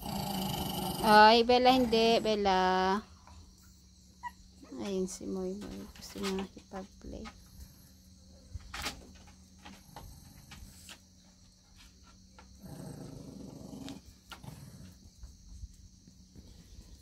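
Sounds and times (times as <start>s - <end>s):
dogs play-growling: 0.0s - 2.5s, 9.6s - 11.1s, 12.5s - 15.3s.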